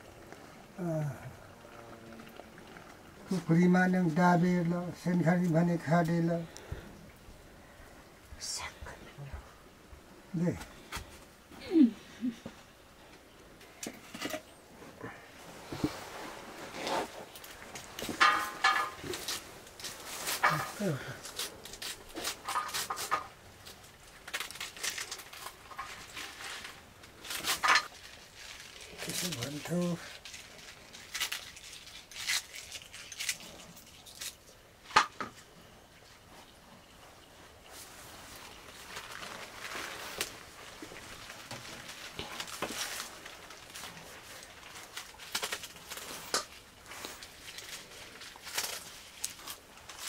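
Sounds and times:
leaves rustling: 0:00.0 - 0:50.0
knife cutting leaves and stalks: 0:18.0 - 0:25.6.

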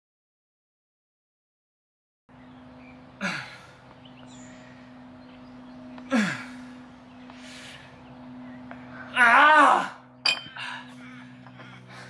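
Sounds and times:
steady low hum: 0:02.3 - 0:12.0
man grunting with effort: 0:06.1 - 0:06.7, 0:09.1 - 0:10.9.

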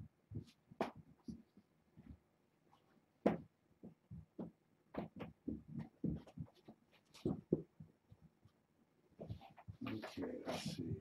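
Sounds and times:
kittens thumping on carpet: 0:03.2 - 0:07.9.

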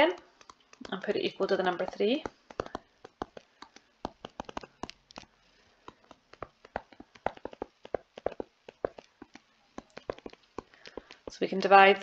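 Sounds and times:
stylus tapping on tablet: 0:00.0 - 0:12.0.

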